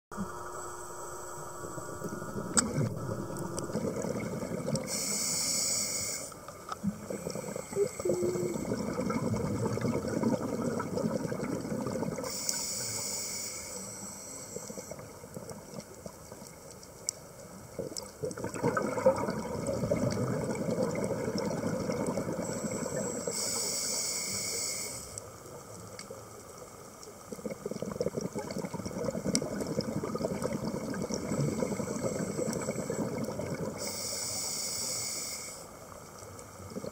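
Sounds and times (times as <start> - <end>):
bubbly gurgling exhaled air: 1.4 - 5.1, 6.8 - 12.3, 17.7 - 23.2, 27.3 - 33.9
regulator hissing inhalations: 4.8 - 6.4, 12.3 - 14.9, 22.5 - 25.2, 33.8 - 35.7.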